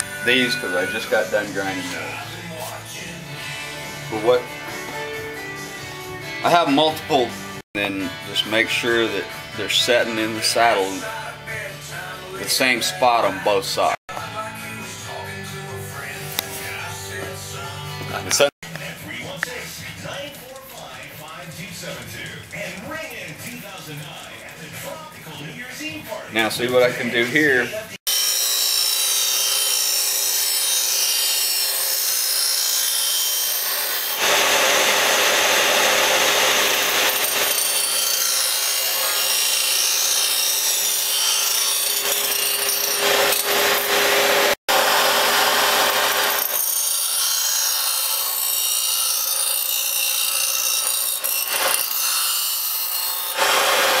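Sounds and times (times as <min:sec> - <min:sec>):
grinding wheel on metal: 0:00.0 - 0:02.7, 0:28.1 - 0:54.0.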